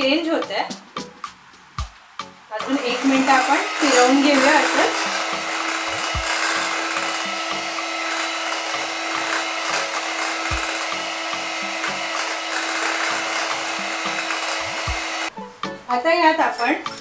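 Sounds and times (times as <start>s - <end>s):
beaters whipping cream in bowl: 2.6s - 15.3s
electric hand mixer humming: 2.6s - 15.3s.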